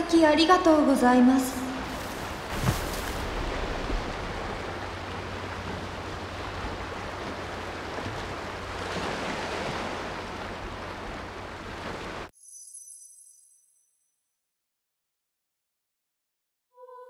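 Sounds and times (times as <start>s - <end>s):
waves washing onto beach: 1.7s - 12.3s.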